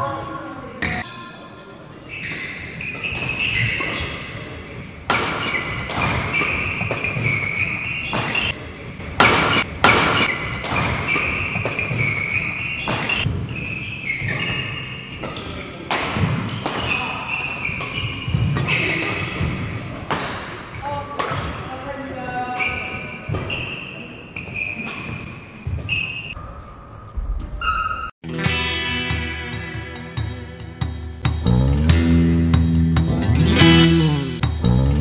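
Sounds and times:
shoes squeaking on court: 0:01.9 - 0:26.4
rackets hitting shuttlecock: 0:02.2 - 0:21.8, 0:22.5 - 0:23.8.

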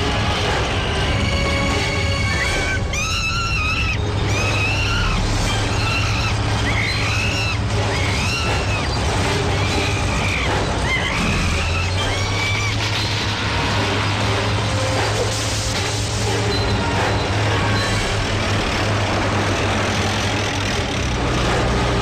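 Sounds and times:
bulldozer engine rumbling: 0:00.0 - 0:22.0
young gorilla crying: 0:02.0 - 0:13.1.

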